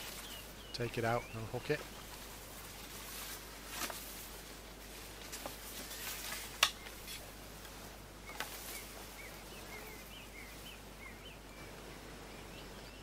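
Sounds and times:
bird chirping: 0:00.0 - 0:02.4, 0:08.2 - 0:13.0.

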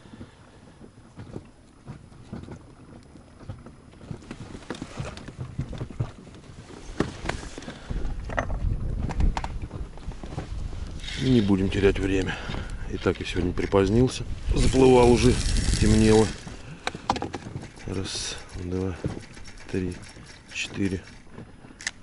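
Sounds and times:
gear knocking and clattering: 0:14.6 - 0:21.4.

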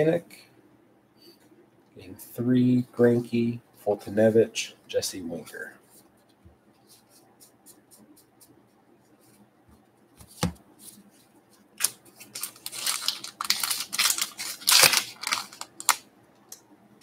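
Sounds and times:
wrapper crinkling and tearing: 0:11.8 - 0:16.0.

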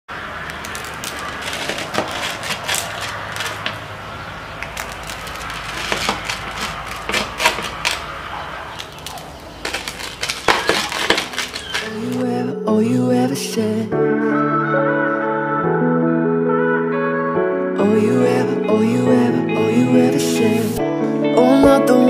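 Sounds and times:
knife cutting crisp pastry: 0:00.6 - 0:03.7, 0:04.7 - 0:08.1.

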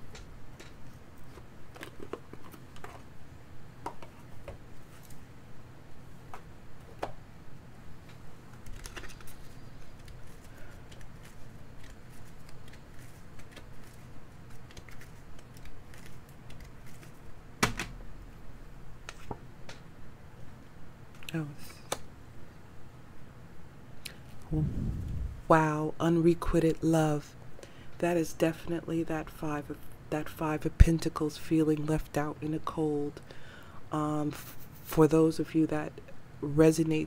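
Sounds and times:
cards shuffling: 0:08.5 - 0:17.8.

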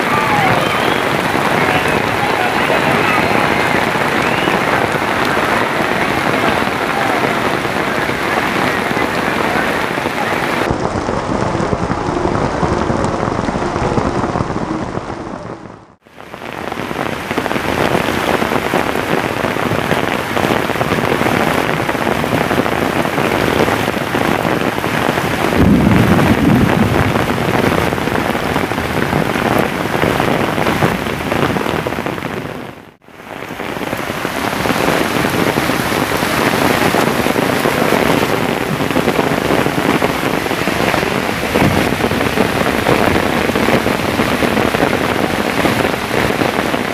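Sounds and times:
heavy rain on pavement: 0:00.0 - 0:46.9
low rumble: 0:07.6 - 0:16.0, 0:25.5 - 0:29.5, 0:40.0 - 0:46.1.

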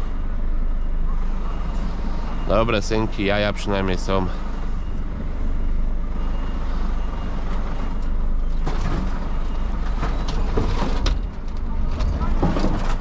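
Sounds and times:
faint high beeping: 0:00.0 - 0:08.7
heavy truck engine running: 0:00.0 - 0:13.0.

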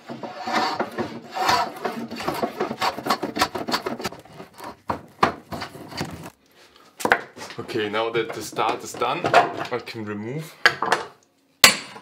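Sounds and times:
hand plane shaving wood: 0:00.0 - 0:04.8.

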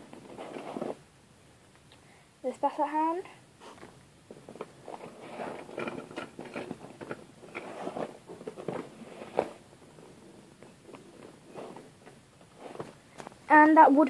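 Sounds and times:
plastic figurines rustling and clicking: 0:03.8 - 0:13.4.

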